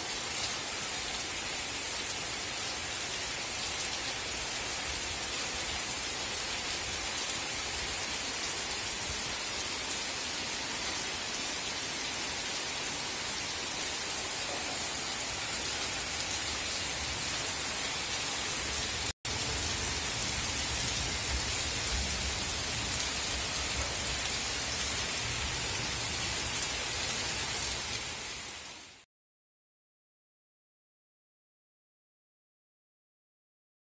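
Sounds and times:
heavy rain falling: 0.0s - 29.0s.

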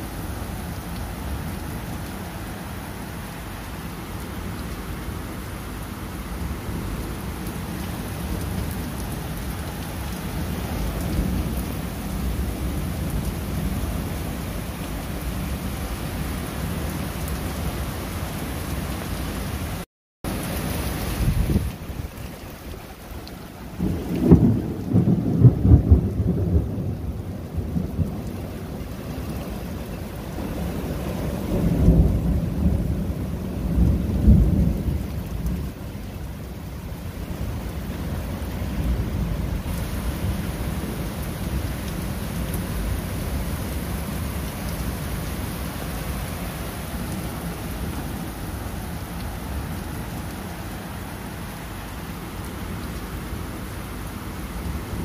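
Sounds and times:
rain falling on water: 0.0s - 55.0s
thunder rumbling: 23.7s - 35.8s.

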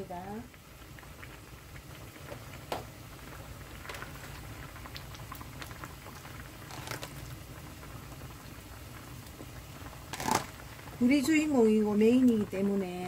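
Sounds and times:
broth boiling and bubbling: 0.0s - 13.0s
oysters splashing into pot: 3.6s - 7.6s, 10.0s - 11.5s.

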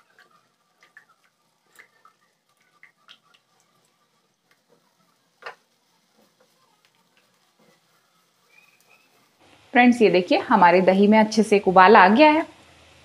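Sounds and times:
spatula scraping a pan: 4.7s - 9.4s.

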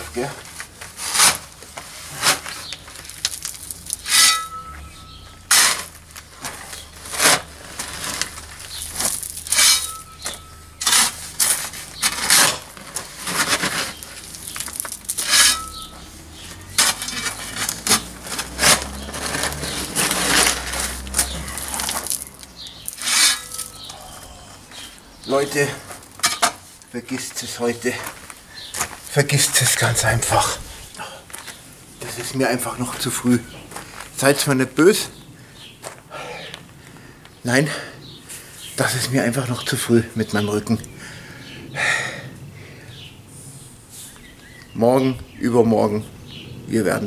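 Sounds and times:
gravel scraping and crunching: 0.0s - 37.0s.

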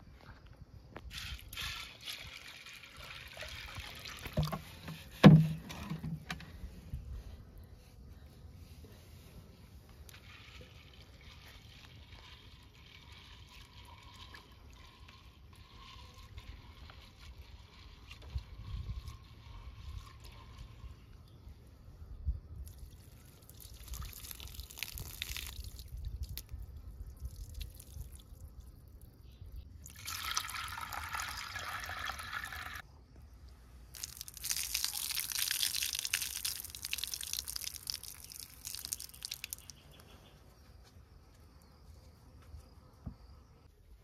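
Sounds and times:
water splashing through beans: 1.1s - 6.0s, 22.6s - 26.5s, 29.8s - 32.8s, 33.9s - 39.8s.

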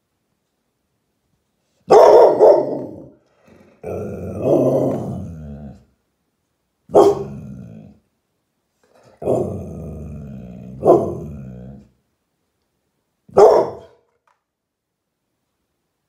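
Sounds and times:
dog barking: 1.9s - 3.2s, 6.9s - 7.4s, 10.8s - 11.3s, 13.3s - 14.0s
dog growling: 2.6s - 5.9s, 6.9s - 8.1s, 8.9s - 12.0s.

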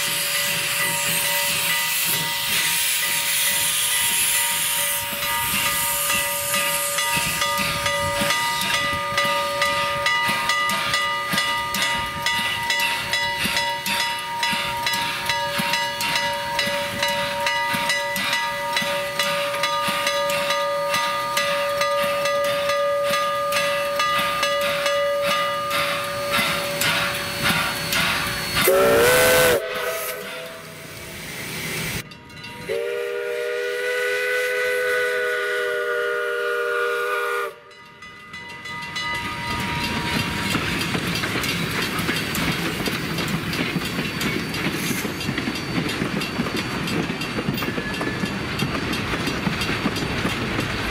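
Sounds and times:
steam whistle blast: 0.0s - 7.4s, 26.5s - 31.2s, 32.6s - 37.7s
steady whistling tones: 0.0s - 37.6s, 38.6s - 50.9s
steam locomotive hissing: 0.0s - 50.9s.

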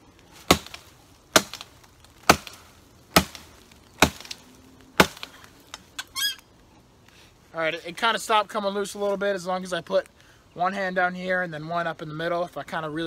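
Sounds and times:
shovel chopping into log: 0.4s - 4.4s, 5.0s - 5.4s.

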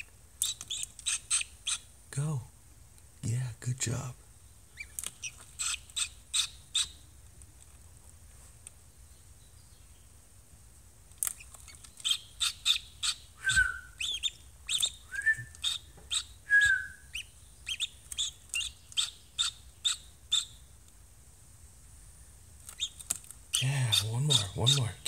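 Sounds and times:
duckling peeping: 0.0s - 2.0s, 4.6s - 7.1s, 11.2s - 20.7s, 22.7s - 25.0s.

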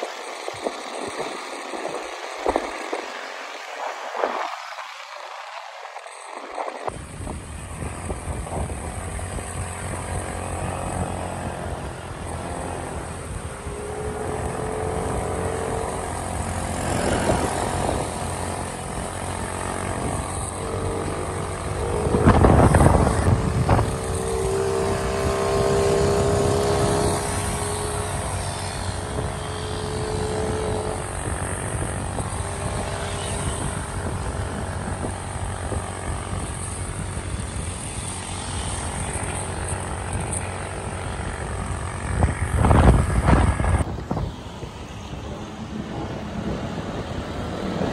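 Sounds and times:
road noise: 0.0s - 47.9s
scooter engine drone: 0.0s - 47.9s
wind rush: 0.0s - 47.9s.

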